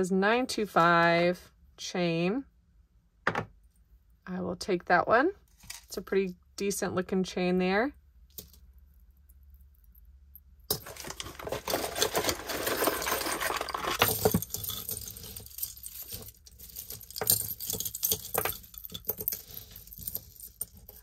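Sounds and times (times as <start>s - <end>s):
metal jewelry jangling: 10.7s - 21.0s.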